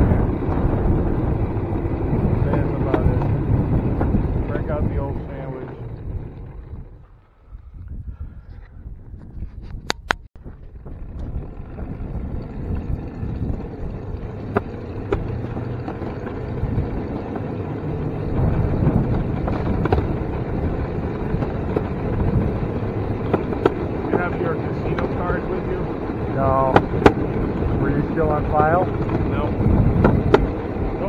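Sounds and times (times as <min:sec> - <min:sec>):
wheels rumbling on rails: 0:00.0 - 0:31.0
sharp clicks and knocks: 0:02.4 - 0:03.4, 0:14.2 - 0:16.5, 0:18.4 - 0:20.5, 0:23.1 - 0:25.2, 0:26.6 - 0:27.4, 0:28.6 - 0:29.4, 0:30.0 - 0:30.6.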